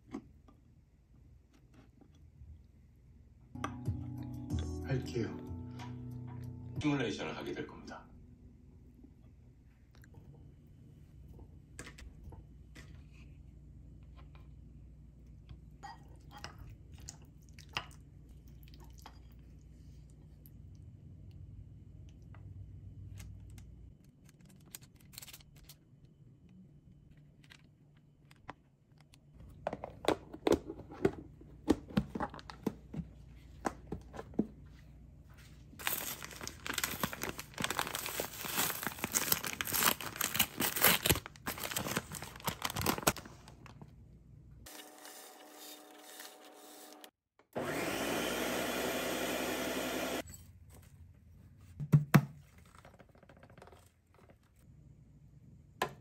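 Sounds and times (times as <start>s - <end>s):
paper bag crinkling: 35.8s - 43.9s
blender grinding: 44.7s - 50.2s.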